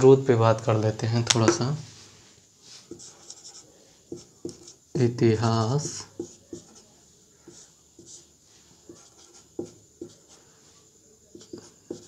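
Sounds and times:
marker pen writing on whiteboard: 1.3s - 1.7s, 2.8s - 12.0s.

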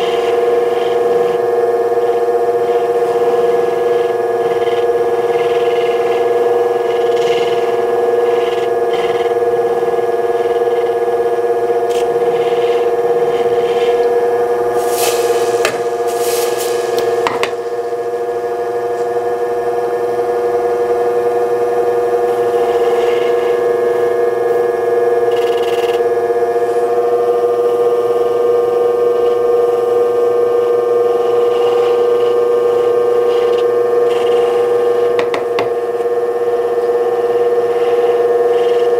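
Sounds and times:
lapidary motor humming: 0.0s - 38.9s
stone scraping on grinding wheel: 11.8s - 14.1s.

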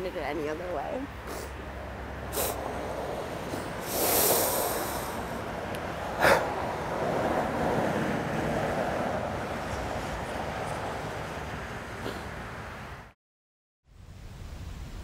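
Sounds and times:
person sniffing: 1.2s - 1.6s, 2.3s - 2.6s, 3.5s - 5.4s, 6.2s - 6.5s, 12.0s - 12.3s
person breathing heavily: 3.5s - 5.4s.

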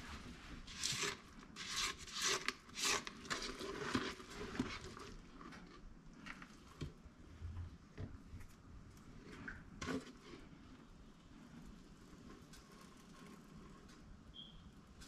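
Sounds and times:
spatula scraping a metal pot: 0.6s - 5.0s.

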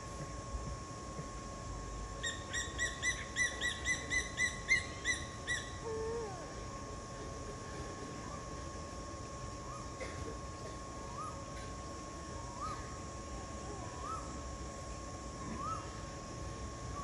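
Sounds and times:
bird calling: 12.6s - 13.0s, 15.5s - 16.0s.

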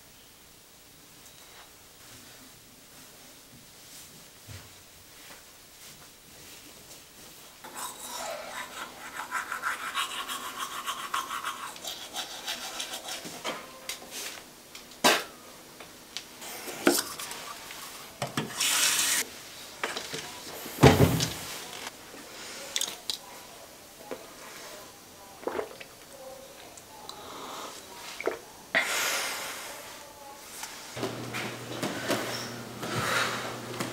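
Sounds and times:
toothbrush scrubbing teeth: 7.6s - 13.4s, 16.8s - 17.9s.

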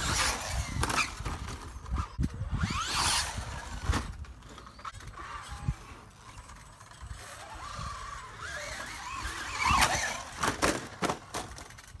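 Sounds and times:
toy truck thumping on trampoline: 0.0s - 5.5s, 7.0s - 12.0s
electric motor whining: 4.7s - 10.4s.

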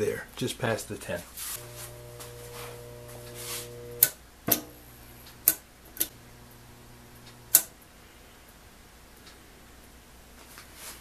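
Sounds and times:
transformer humming: 1.6s - 4.1s, 4.8s - 7.6s
switch clicks: 7.2s - 7.8s.

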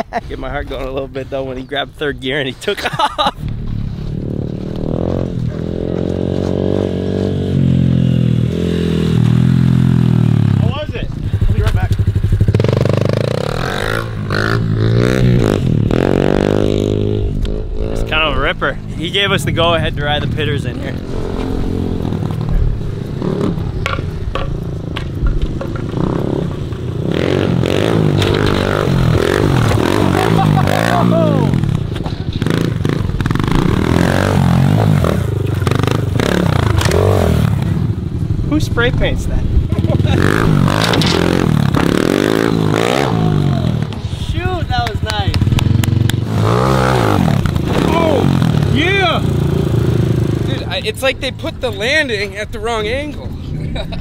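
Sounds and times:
pit bike engine revving: 3.9s - 54.0s
knocks and scrapes: 23.8s - 26.9s, 28.1s - 29.9s, 40.6s - 42.0s.

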